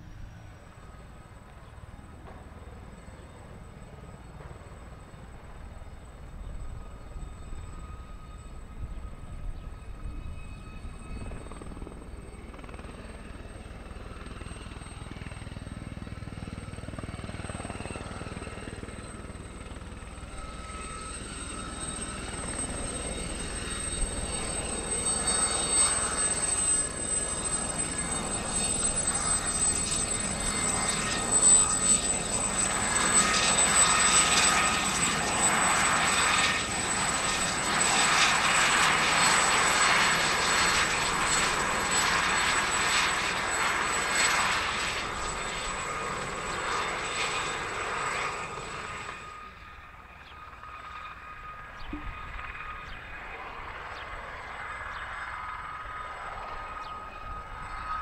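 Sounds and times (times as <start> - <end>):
helicopter hovering and flying past: 0.0 - 58.0.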